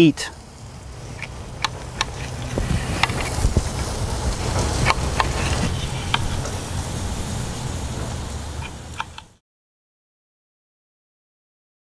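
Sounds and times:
steady hiss: 0:00.0 - 0:09.4
low rumble: 0:00.3 - 0:09.3.

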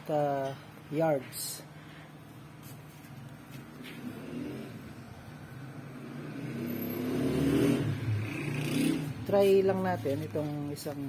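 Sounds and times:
vehicle engine revving: 0:03.8 - 0:09.6.

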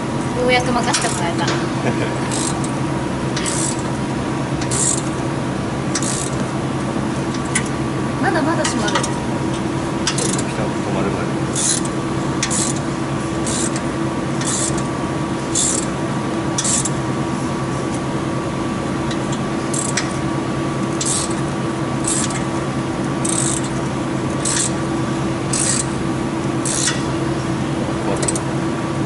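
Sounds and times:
steady hum: 0:00.0 - 0:29.0
ratchet wrench clicking: 0:02.3 - 0:02.7, 0:03.4 - 0:03.8, 0:04.6 - 0:05.1, 0:06.0 - 0:06.4, 0:10.1 - 0:10.4, 0:11.6 - 0:12.8, 0:13.4 - 0:13.8, 0:14.4 - 0:14.9, 0:15.5 - 0:15.9, 0:16.6 - 0:17.0, 0:19.1 - 0:20.1, 0:21.0 - 0:21.4, 0:22.0 - 0:22.4, 0:23.2 - 0:23.8, 0:24.4 - 0:24.8, 0:25.5 - 0:25.9, 0:26.6 - 0:27.0, 0:28.2 - 0:28.4.

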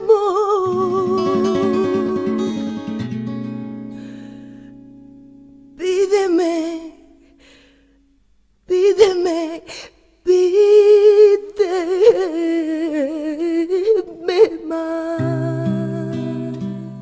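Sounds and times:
woman humming a melody: 0:00.0 - 0:02.9
held guitar chord: 0:00.6 - 0:05.8.

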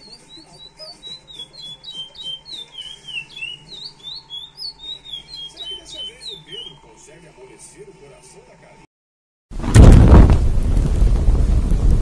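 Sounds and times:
finch singing whistled notes: 0:00.0 - 0:06.9.

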